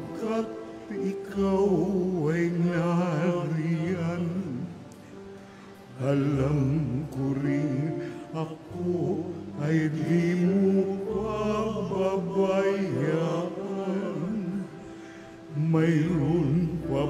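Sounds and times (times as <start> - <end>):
low held accompaniment notes: 0.0 - 17.0
person singing a hymn: 0.0 - 17.0.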